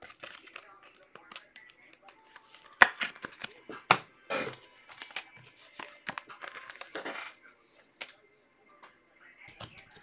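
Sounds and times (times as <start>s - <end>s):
cards rustling: 0.0s - 7.4s.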